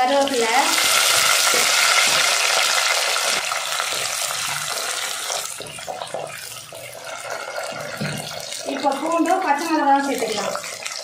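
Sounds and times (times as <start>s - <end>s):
shallots sizzling in hot oil: 0.0s - 11.0s.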